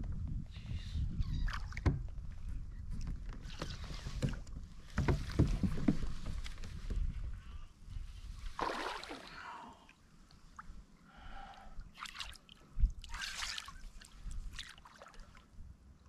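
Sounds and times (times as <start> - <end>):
fish splashing in water: 8.6 - 9.3.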